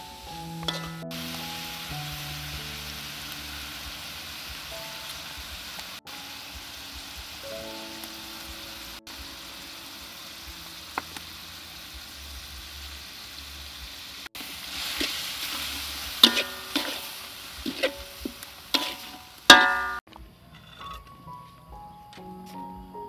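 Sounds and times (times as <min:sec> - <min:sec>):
meat sizzling in a wok: 0:00.0 - 0:20.0
metal spatula clinking against wok: 0:00.7 - 0:01.0, 0:16.2 - 0:17.0, 0:18.7 - 0:20.0.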